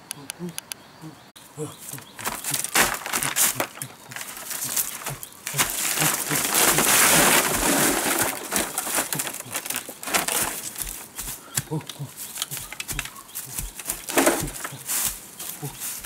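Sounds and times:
dry leaves rustling and crackling: 1.9 - 16.0.

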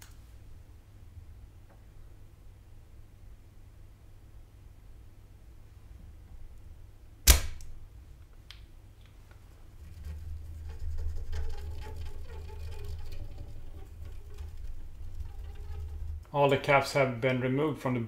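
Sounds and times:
sharp knock: 7.3 - 7.6.

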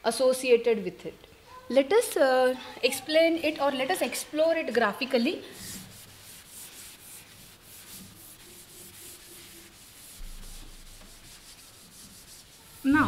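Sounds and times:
duster rubbing on chalkboard: 5.5 - 13.0.

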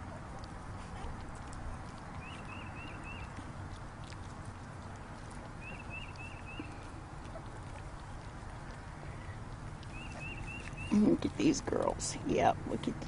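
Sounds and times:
puppies chewing from metal pan: 0.0 - 13.0
bird chirping: 2.2 - 3.4, 5.6 - 7.0, 8.9 - 11.1.

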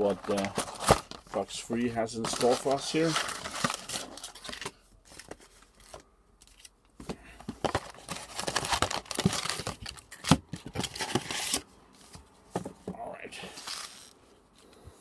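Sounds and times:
foil packs crinkling: 0.0 - 5.4, 7.6 - 11.6.

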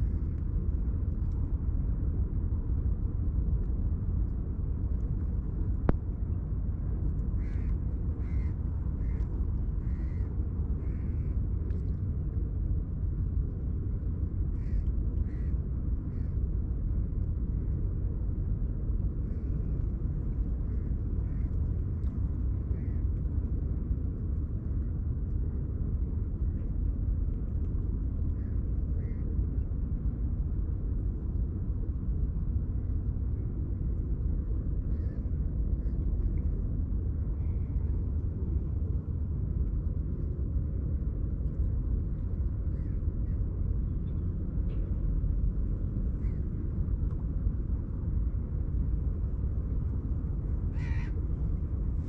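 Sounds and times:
steady low rumble: 0.0 - 52.0
crows cawing: 7.4 - 9.2, 9.9 - 10.2, 50.7 - 51.2
bird calls: 50.8 - 51.1.

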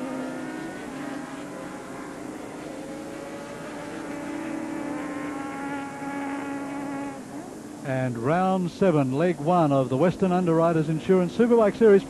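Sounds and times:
motorcycle engines at high revs: 0.0 - 7.8.

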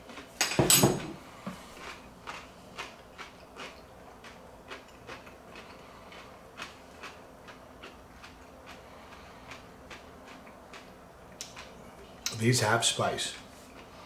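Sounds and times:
person chewing crunchy pickle: 1.2 - 12.3.

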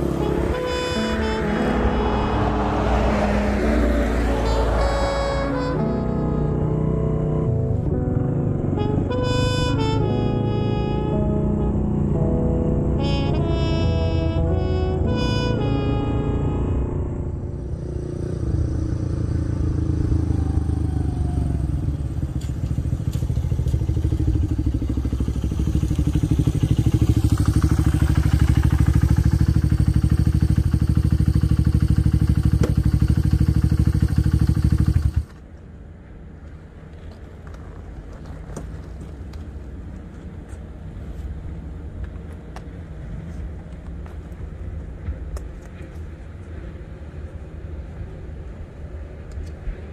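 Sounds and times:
motorcycle engine running: 17.7 - 35.4.

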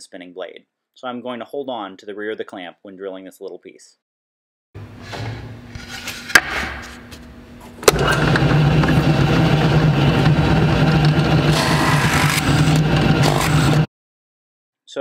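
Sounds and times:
drill press running: 7.8 - 13.9
drill bit grinding into plywood: 7.9 - 13.9.

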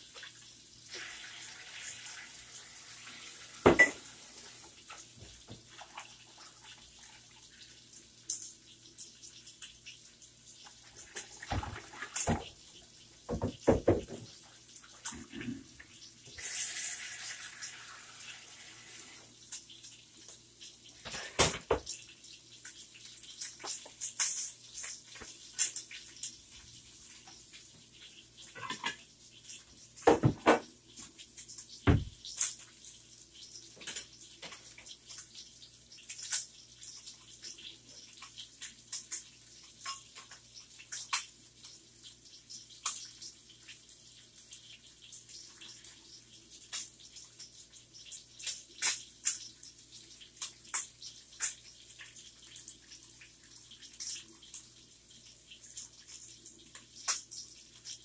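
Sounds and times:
pots knocking on stovetop: 3.6 - 4.0, 13.3 - 14.3, 30.0 - 30.7.

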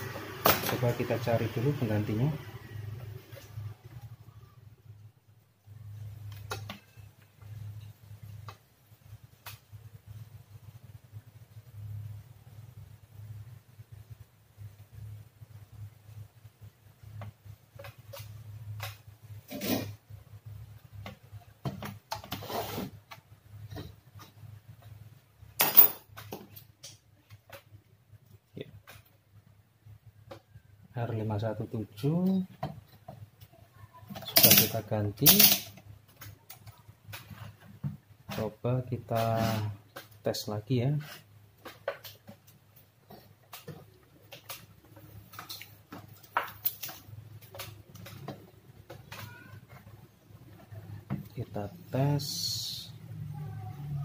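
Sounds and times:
clicks and rustles of handled cables: 41.0 - 49.9.

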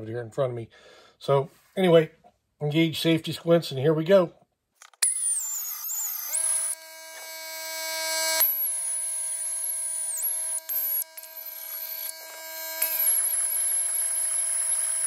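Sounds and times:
belt sander whining: 4.9 - 15.0.

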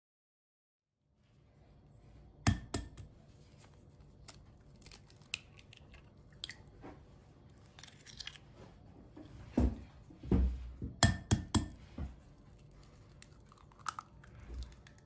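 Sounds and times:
egg tapping: 2.5 - 3.1, 10.8 - 11.8
eggshell crackling: 4.0 - 6.8, 7.4 - 8.6, 12.4 - 15.0.

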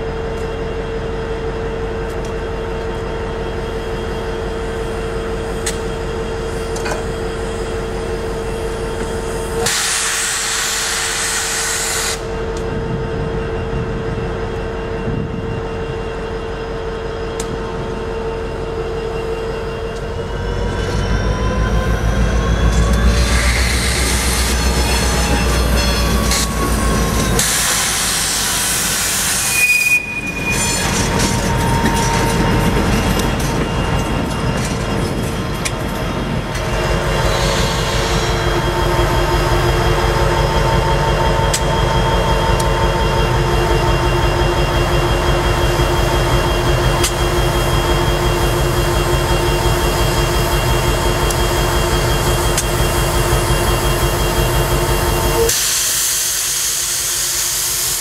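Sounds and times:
locomotive engine rumbling: 12.2 - 56.6.

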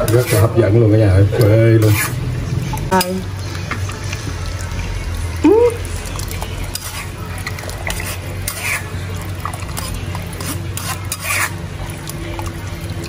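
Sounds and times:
metal ladle scraping a strainer: 0.0 - 0.6, 1.4 - 2.2, 6.6 - 11.6.

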